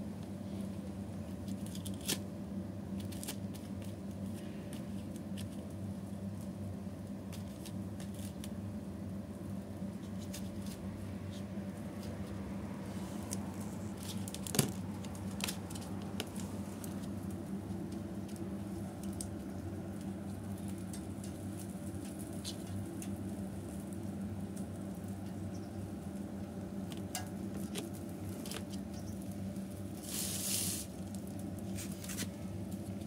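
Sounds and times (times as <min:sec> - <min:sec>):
steady low hum: 0:00.0 - 0:33.0
kitten clawing plastic and wire: 0:01.4 - 0:02.2, 0:13.2 - 0:25.5.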